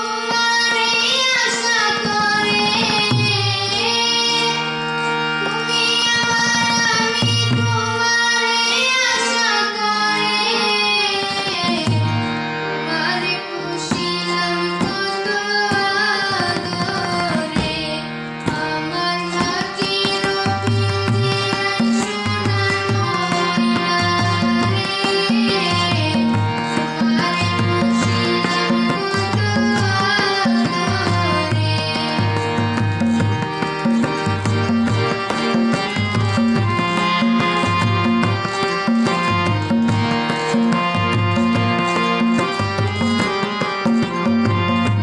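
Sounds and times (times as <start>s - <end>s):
harmonium playing chords: 0.0s - 45.0s
girls singing: 12.8s - 32.4s.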